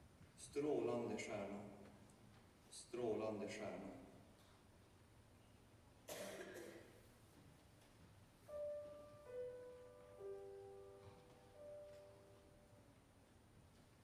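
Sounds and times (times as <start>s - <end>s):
soft piano notes: 6.1s - 14.0s.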